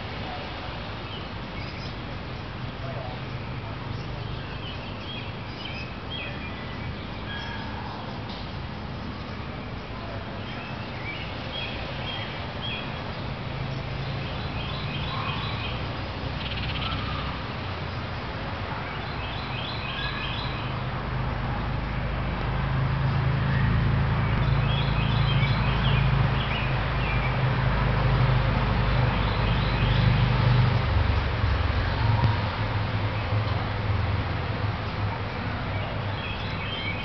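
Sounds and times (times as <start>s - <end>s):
small birds chirping: 1.0s - 18.2s, 18.8s - 20.9s, 34.8s - 37.0s
vehicle engine hum: 20.6s - 37.0s.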